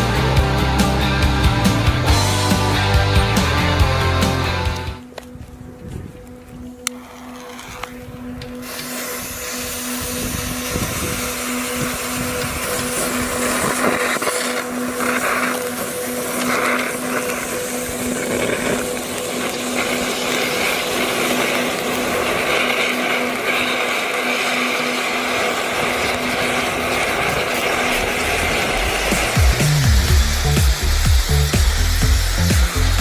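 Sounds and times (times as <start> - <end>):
fireworks hissing sparks: 6.8 - 33.0.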